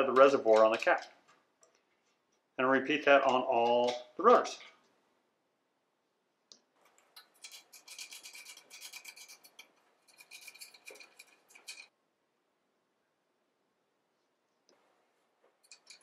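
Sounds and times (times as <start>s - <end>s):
metal threads grating: 7.2s - 11.9s, 15.6s - 16.0s.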